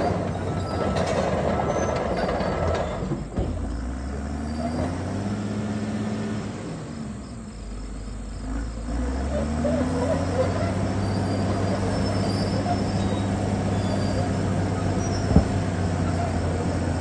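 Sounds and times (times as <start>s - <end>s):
steel tracks clanking and squealing: 0.0s - 3.8s, 4.4s - 5.1s, 9.3s - 17.0s
diesel engine running: 0.0s - 17.0s.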